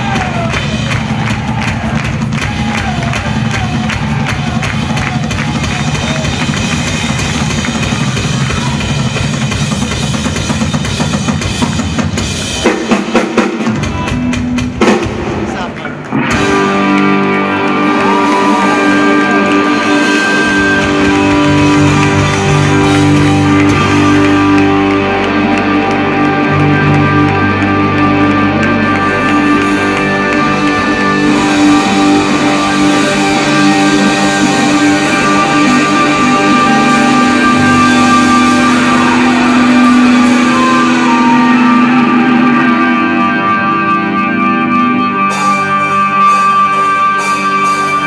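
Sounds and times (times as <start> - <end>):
live rock band playing: 0.0 - 48.0
sustained electric guitar chords: 13.6 - 48.0
bass notes: 13.8 - 48.0.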